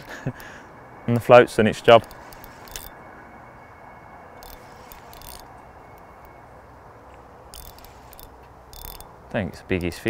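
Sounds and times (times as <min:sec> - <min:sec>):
faint outdoor hiss: 0:00.0 - 0:10.0
fishing reel clicking: 0:02.0 - 0:03.0, 0:04.4 - 0:05.5, 0:07.5 - 0:09.1.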